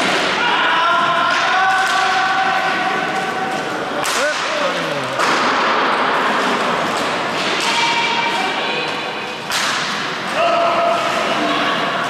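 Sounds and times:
players shouting: 0.0s - 5.2s
hockey sticks and ball knocking: 1.3s - 8.4s, 9.4s - 10.2s.

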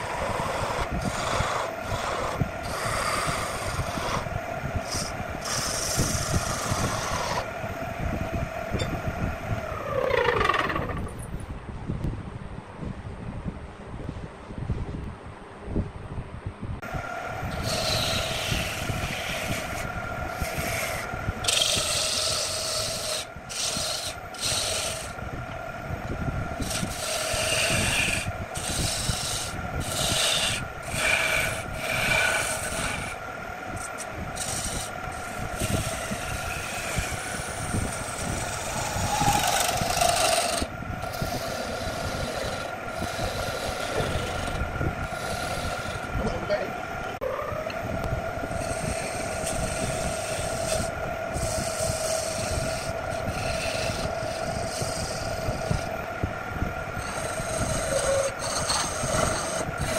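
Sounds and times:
rasping wood shavings: 0.0s - 7.5s, 17.5s - 25.3s, 26.6s - 33.2s, 33.8s - 46.6s, 48.5s - 56.1s, 56.8s - 59.9s
turning tool scraping wood: 0.0s - 7.5s, 17.5s - 25.2s, 26.6s - 33.2s, 33.8s - 46.6s, 48.5s - 56.0s, 56.9s - 59.9s
wood lathe humming: 0.0s - 7.5s, 16.8s - 59.9s.

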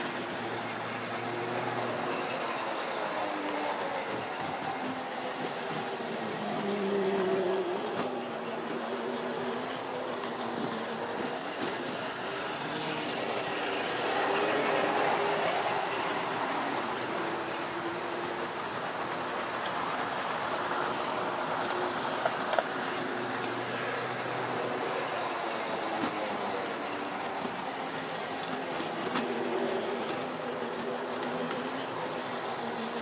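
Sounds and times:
model train motor whirring: 0.0s - 33.0s
wheels running on rails: 0.0s - 33.0s.

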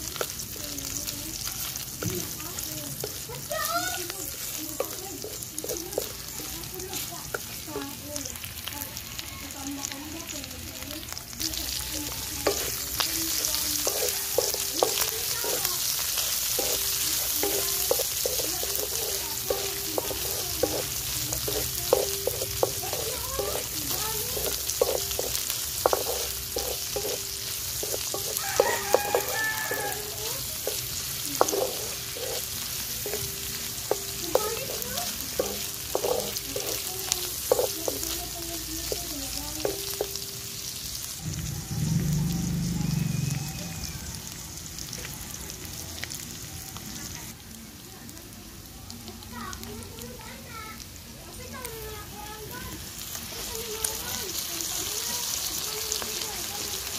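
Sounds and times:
food sizzling in wok: 0.0s - 56.9s
wooden spatula scraping pan: 12.2s - 38.2s.

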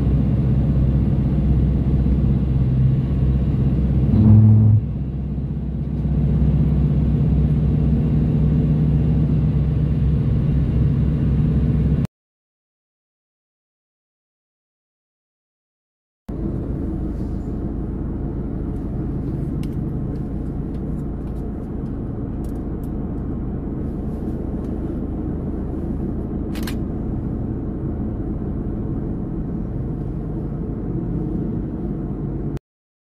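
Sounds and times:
street traffic passing: 0.0s - 12.1s, 16.3s - 32.6s.

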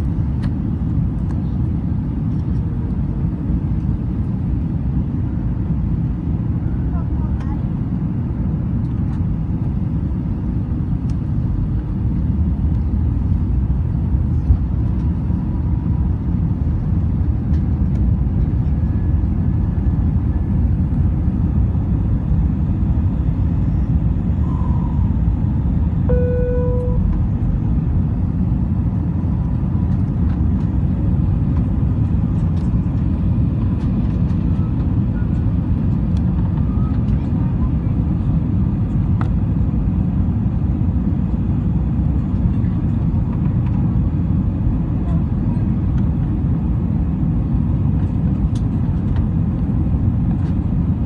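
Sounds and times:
jet engines rumbling in cabin: 0.0s - 51.0s
short pitched tone: 26.1s - 27.2s.

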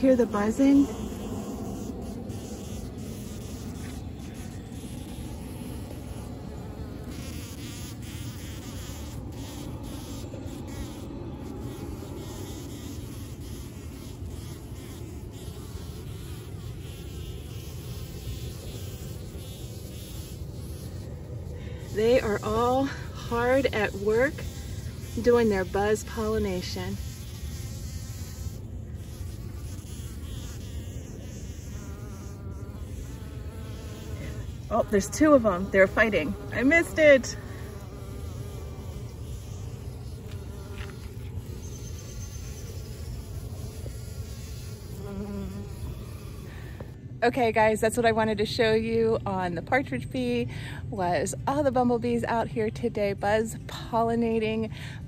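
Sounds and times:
bumblebees buzzing: 0.0s - 47.0s.

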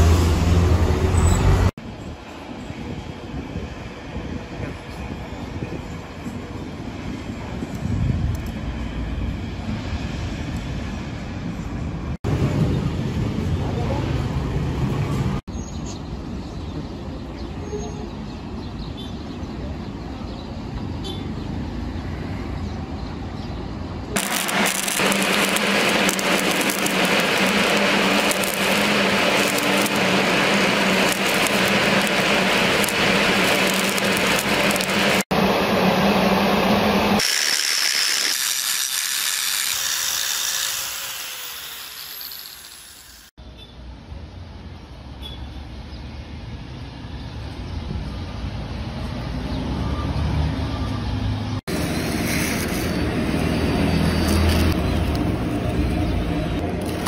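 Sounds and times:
angle grinder grinding steel: 24.2s - 43.3s.

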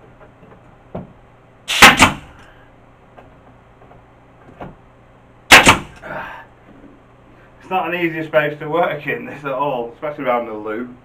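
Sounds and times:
nail gun bangs: 1.7s - 2.4s, 5.5s - 6.0s.

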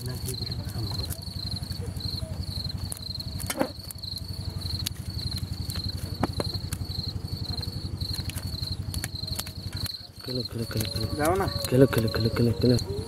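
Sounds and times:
crickets chirping: 0.0s - 13.0s
pulsing mechanical hum: 0.0s - 13.0s.

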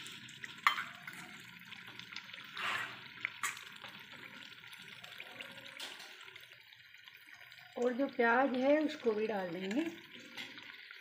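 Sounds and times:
gravy simmering and sizzling: 0.0s - 11.0s.

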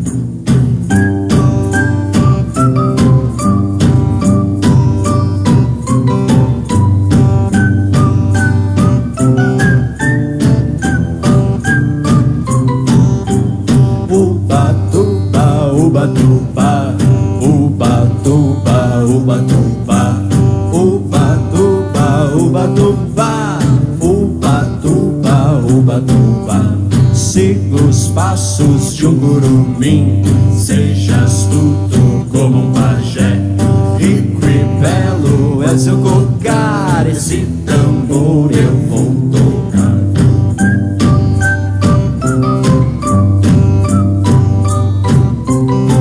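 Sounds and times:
drums: 0.0s - 46.0s
guitar: 0.0s - 46.0s
keyboard: 0.0s - 46.0s
person singing: 13.9s - 40.7s.

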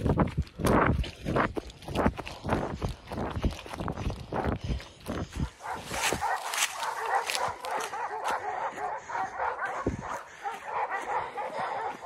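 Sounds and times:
footsteps thumping: 5.2s - 8.4s
distant dogs barking: 5.4s - 12.0s.

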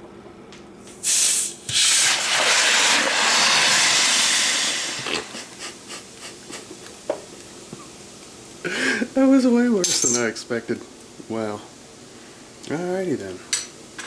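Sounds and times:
gas hissing from opened bottle: 0.8s - 5.8s
foam gushing from bottle: 1.7s - 5.2s.

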